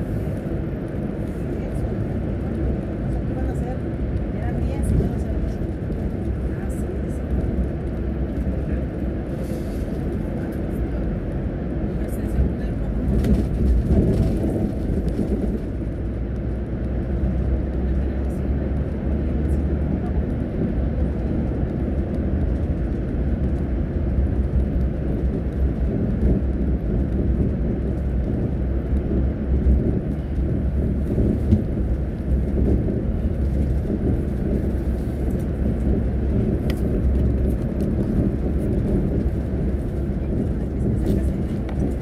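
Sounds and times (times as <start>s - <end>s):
bus engine and tyres rumbling: 0.0s - 42.0s.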